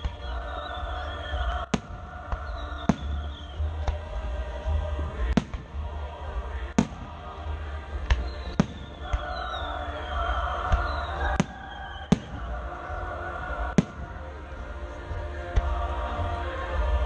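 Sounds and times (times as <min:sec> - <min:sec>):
falling whistling tone: 0:00.0 - 0:01.7, 0:02.3 - 0:03.8, 0:08.2 - 0:12.6.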